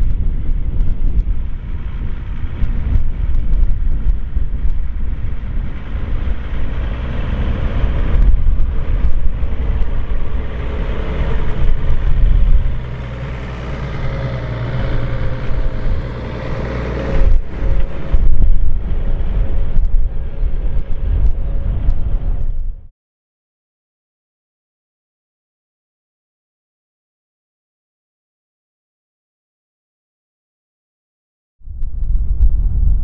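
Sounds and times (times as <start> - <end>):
diesel tractor engine under load: 0.0 - 22.9
steady engine hum: 0.0 - 22.9.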